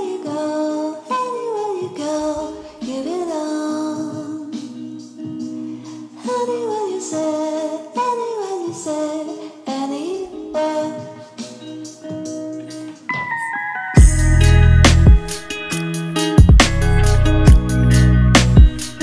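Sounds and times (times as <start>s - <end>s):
held accompaniment notes: 10.9s - 19.0s.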